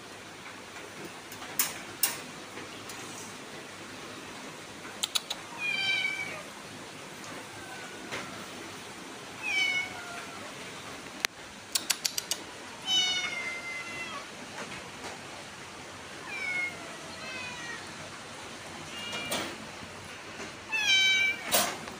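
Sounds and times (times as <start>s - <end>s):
sharp clicks: 11.2s - 12.5s
kitten meowing: 20.7s - 21.5s.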